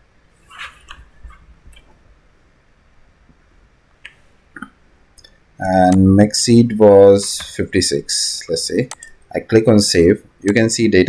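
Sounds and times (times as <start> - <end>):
soft hiss: 0.0 - 11.0
computer clicks: 8.8 - 9.2.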